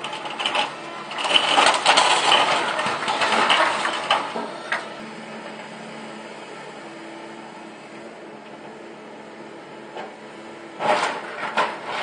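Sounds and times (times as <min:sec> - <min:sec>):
metal roof sheets crunching and clattering: 0:00.0 - 0:04.9, 0:10.8 - 0:12.0
excavator engine running: 0:00.0 - 0:12.0.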